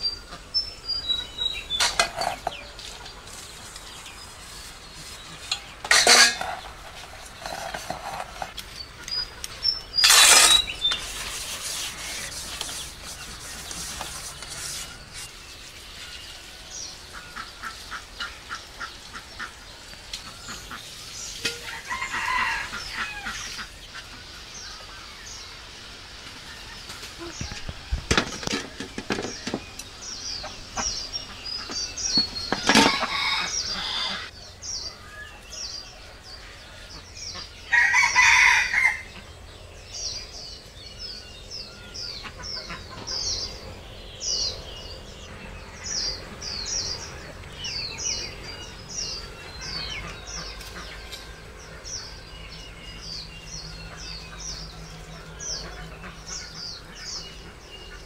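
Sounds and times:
sharp clatter: 0:10.0 - 0:11.1
rooster crowing: 0:21.6 - 0:23.4, 0:32.7 - 0:34.3, 0:37.7 - 0:39.1.

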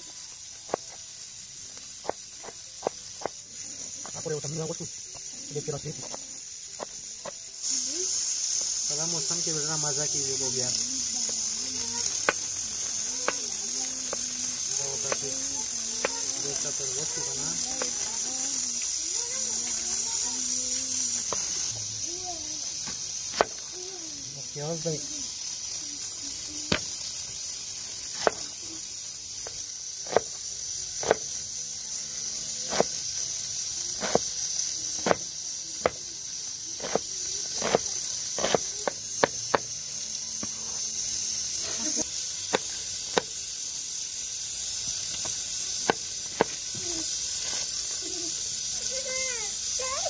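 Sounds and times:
steady high hiss: 0:00.0 - 0:50.0
knife chopping on wooden board: 0:30.0 - 0:30.3, 0:31.0 - 0:31.2, 0:35.0 - 0:35.2, 0:37.6 - 0:37.8, 0:38.4 - 0:38.6.

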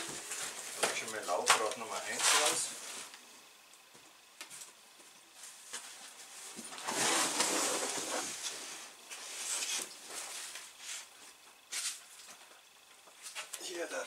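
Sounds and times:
plastic and cardboard rustling: 0:00.0 - 0:03.1, 0:04.5 - 0:12.2.

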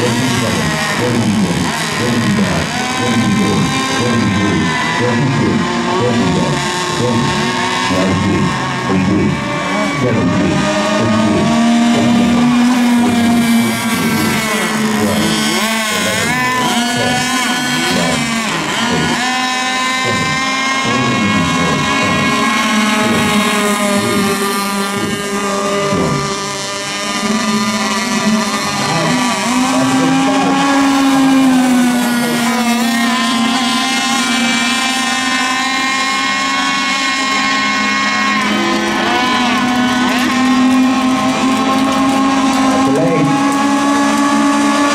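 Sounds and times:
model boat engines whining: 0:00.0 - 0:44.9.

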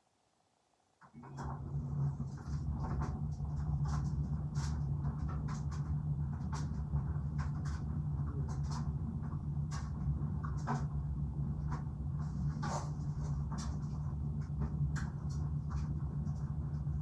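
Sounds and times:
clothes dryer humming: 0:01.1 - 0:17.0.

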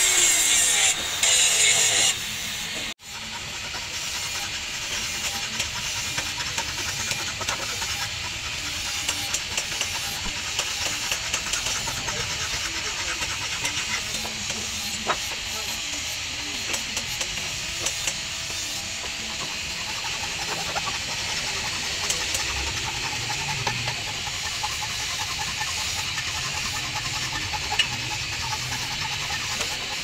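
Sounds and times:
file rasping on metal: 0:00.0 - 0:30.0.

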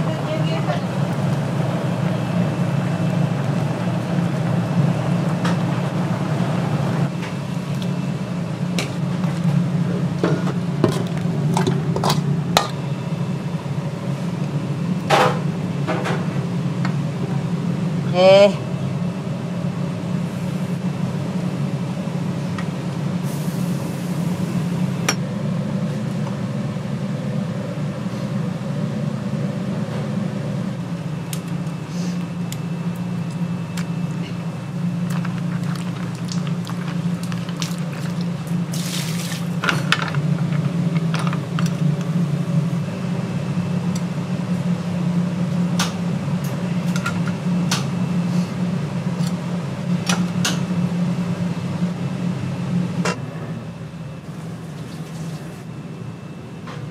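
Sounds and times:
steady low hum: 0:00.0 - 0:56.9
liquid pouring and sloshing: 0:35.0 - 0:41.7.

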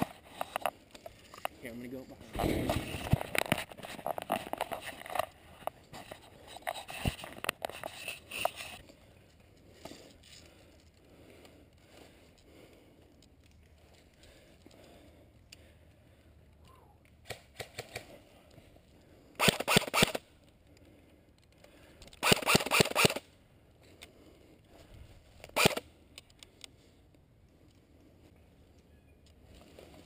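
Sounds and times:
airsoft rifle bursts: 0:19.4 - 0:20.2, 0:22.2 - 0:23.3, 0:25.5 - 0:25.8.

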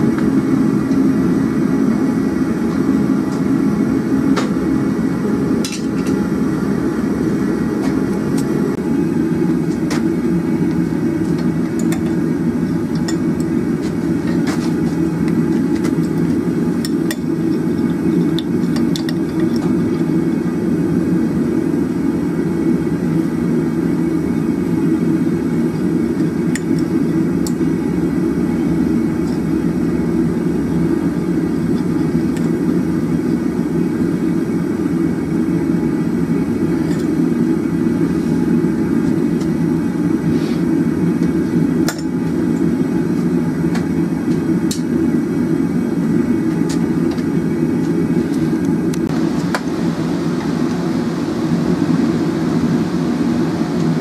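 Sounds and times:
gas forge burner rushing: 0:00.0 - 0:54.0.

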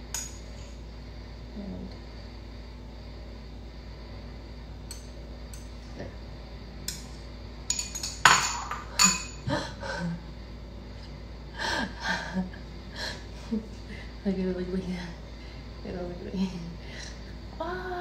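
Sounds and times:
spoon clinking against a bowl: 0:07.7 - 0:09.4.

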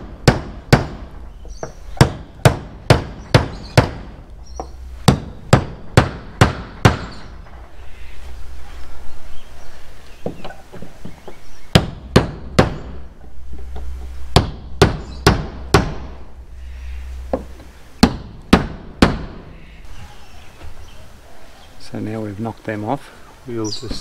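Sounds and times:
hammer striking nails: 0:00.0 - 0:01.2, 0:02.0 - 0:04.2, 0:05.0 - 0:07.2, 0:11.7 - 0:13.0, 0:14.4 - 0:16.2, 0:18.0 - 0:19.4.

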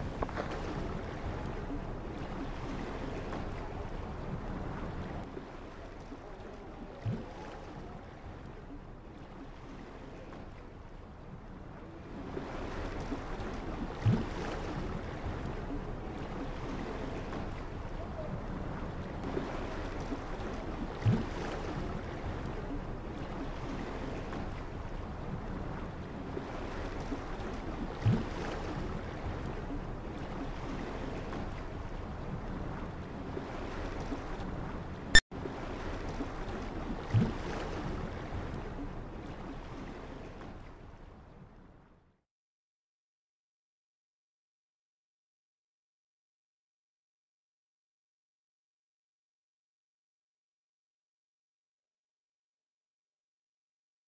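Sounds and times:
sea noise: 0:00.0 - 0:41.6.

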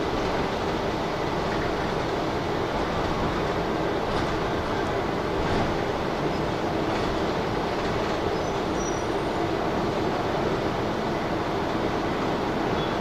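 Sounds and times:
bus rumbling: 0:00.0 - 0:13.0.

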